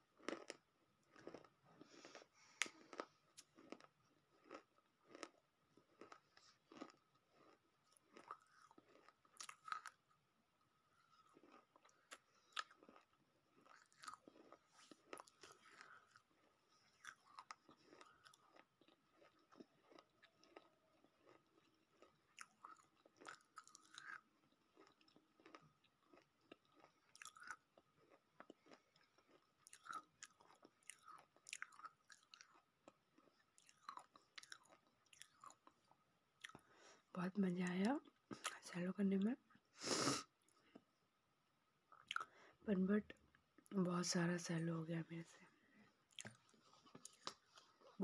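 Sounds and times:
chewing crunches: 0:00.2 - 0:10.1, 0:11.0 - 0:36.9, 0:41.9 - 0:42.4, 0:46.1 - 0:48.0.

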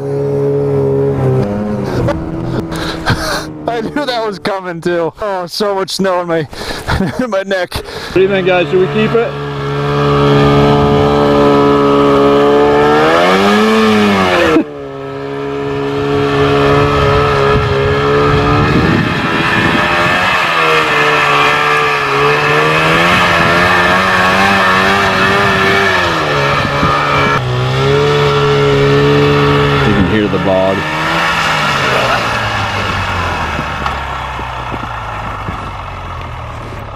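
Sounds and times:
snowmobile engine under load: 0:00.0 - 0:36.9.

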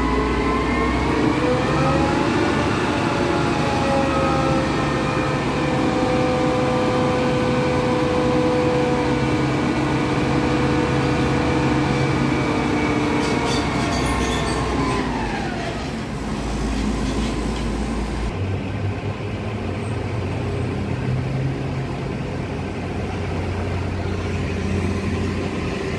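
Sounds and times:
diesel engine running: 0:00.0 - 0:25.9.

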